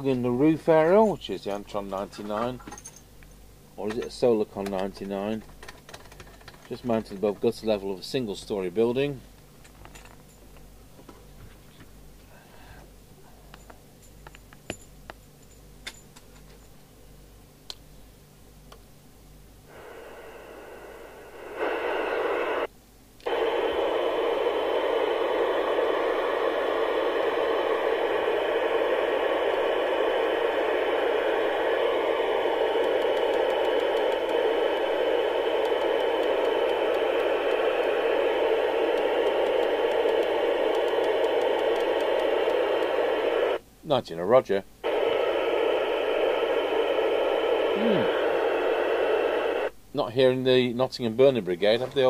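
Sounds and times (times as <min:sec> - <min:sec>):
radio receiver hiss: 0:00.0 - 0:02.2, 0:19.7 - 0:43.6, 0:44.2 - 0:52.0.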